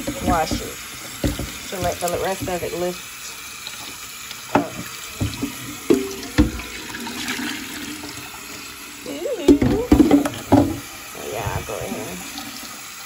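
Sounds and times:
knocks against a pot: 0.0 - 2.8, 4.5 - 6.8, 9.5 - 10.8
scraping pot bottom: 0.0 - 2.8
tap water running into a pot: 0.0 - 13.0.

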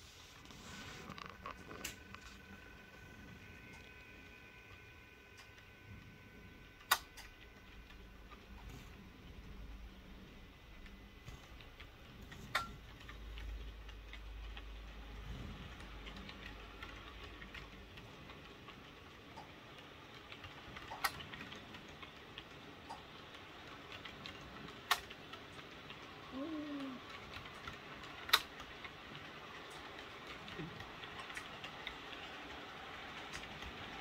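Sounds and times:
model train wheels ticking: 6.5 - 34.0
sharp clicks: 6.8 - 8.0.

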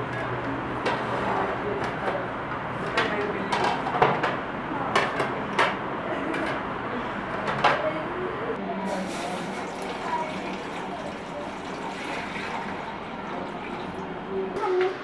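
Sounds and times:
water pouring into metal pot: 8.9 - 14.0.

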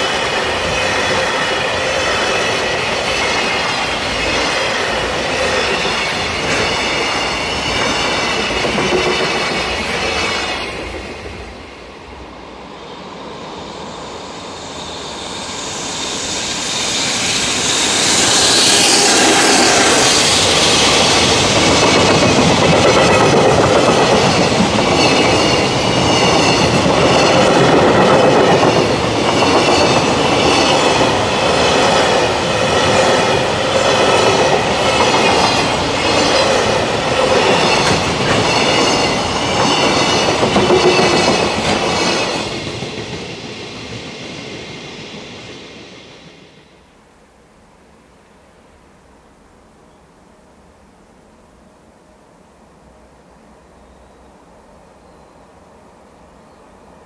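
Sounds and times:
train wheels clacking over rail joints: 0.0 - 10.6, 18.5 - 43.9
electric locomotive passing: 0.0 - 49.7.

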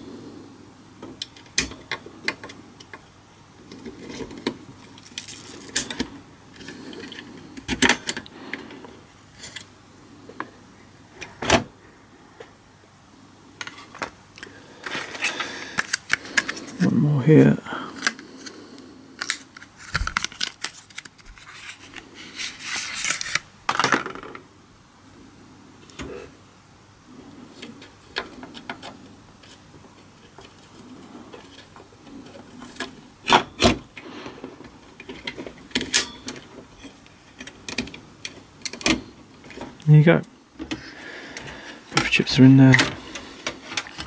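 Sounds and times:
rustling while handling: 3.6 - 9.7, 19.2 - 23.4.

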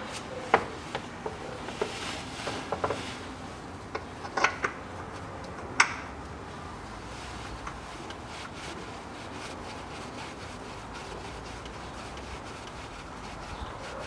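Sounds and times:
rubbing and rustling: 0.0 - 3.7, 6.9 - 14.0.

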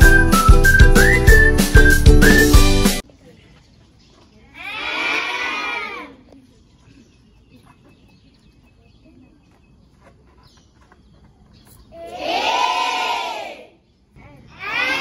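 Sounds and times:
children shouting together: 4.6 - 6.2, 12.0 - 13.7, 14.4 - 15.0.

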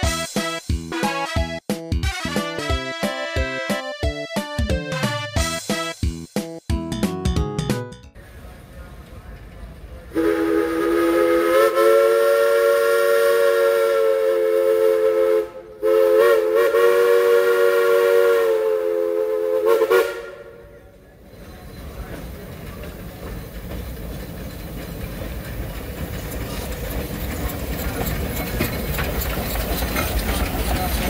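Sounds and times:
steam locomotive whistle: 0.0 - 1.5, 10.1 - 20.8
steam train rumbling: 0.0 - 6.6, 8.2 - 31.0.

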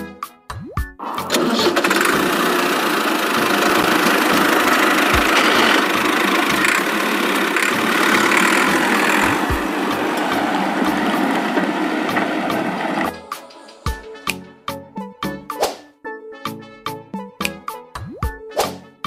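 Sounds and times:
tractor engine running: 1.0 - 13.4
rising whir: 1.2 - 13.9.

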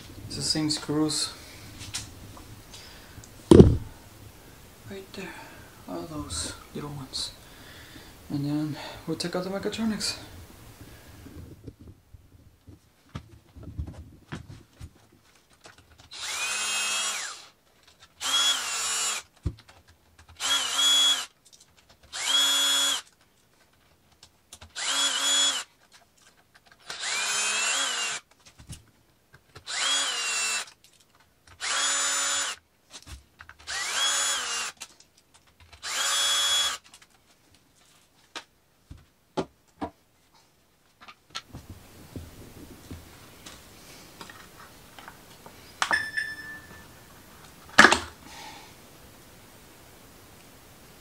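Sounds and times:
cordless drill motor whine: 16.1 - 17.5, 18.2 - 19.2, 20.4 - 21.3, 22.1 - 23.0, 24.8 - 25.6, 26.9 - 28.2, 29.7 - 30.7, 31.6 - 32.6, 33.7 - 34.8, 35.8 - 36.8.

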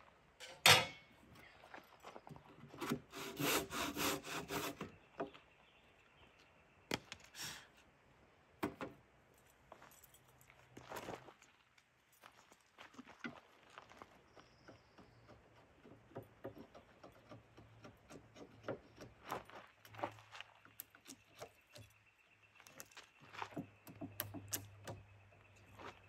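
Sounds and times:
chisel scraping wood: 2.8 - 5.0, 16.0 - 19.3.

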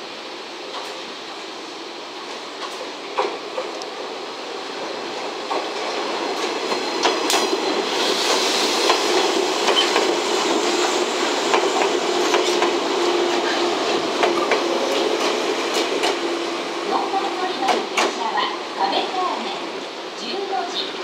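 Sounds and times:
train rumble: 0.0 - 21.0
train wheels clacking over rail joints: 5.4 - 16.5, 17.5 - 18.4.

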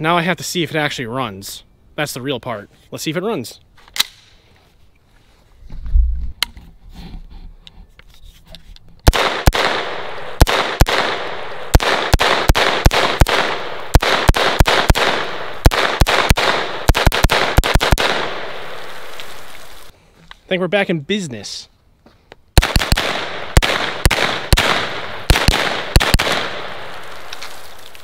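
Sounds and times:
rifle shots echoing: 9.0 - 19.5, 22.6 - 27.4.

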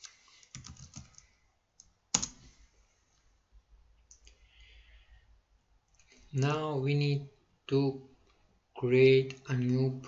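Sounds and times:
keyboard typing: 0.4 - 2.4.

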